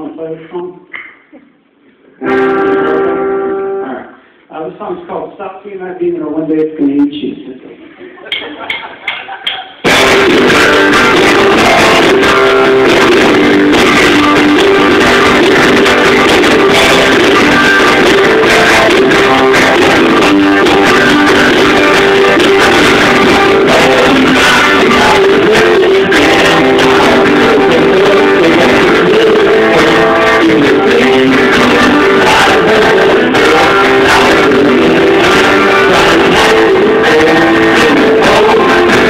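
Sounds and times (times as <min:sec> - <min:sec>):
live band drifting sustained tones: 0:09.9 - 0:39.0.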